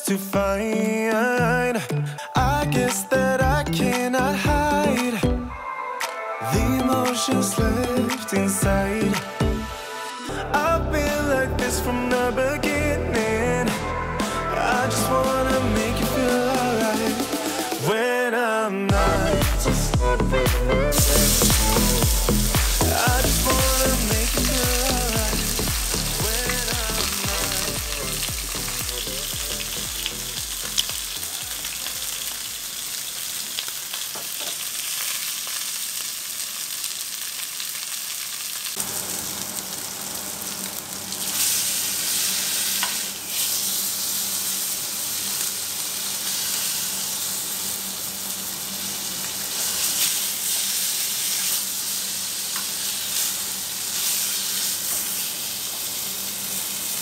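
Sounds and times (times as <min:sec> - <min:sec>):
backing music: 0:00.0 - 0:32.3
meat sizzling in a frying pan: 0:20.9 - 0:57.0.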